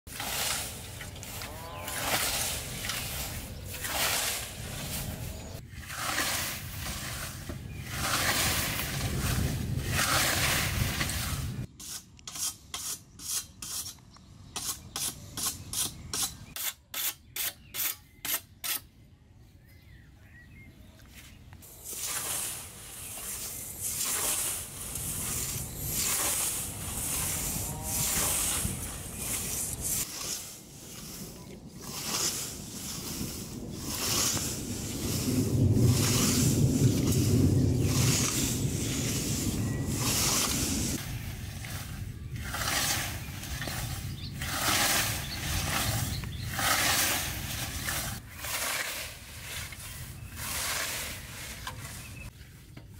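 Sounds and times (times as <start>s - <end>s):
scythe cutting grass: 0.1s - 14.0s, 21.6s - 52.3s.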